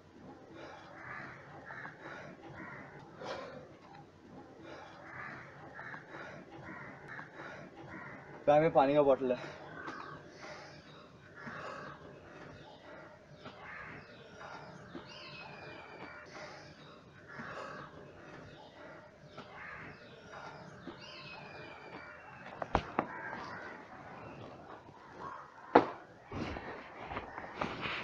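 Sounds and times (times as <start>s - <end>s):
birds calling: 0.0s - 28.0s.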